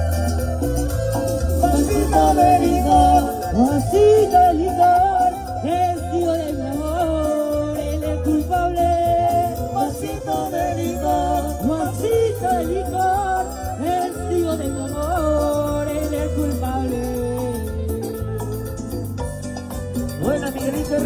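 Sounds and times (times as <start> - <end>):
pulsing bass beat: 0.0 - 21.0
sliding melody line: 0.0 - 21.0.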